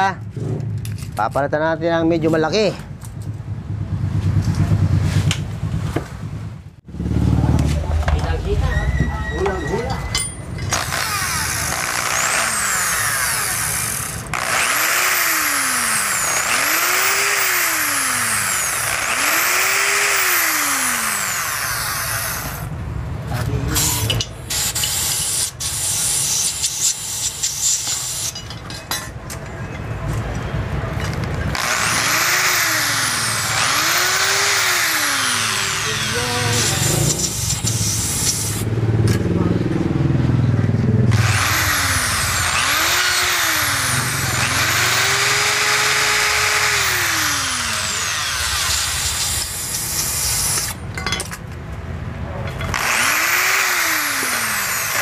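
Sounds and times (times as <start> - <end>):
electric drill running in spurts: 10.7 - 22.7, 31.5 - 38.7, 41.1 - 50.8, 52.7 - 55.0.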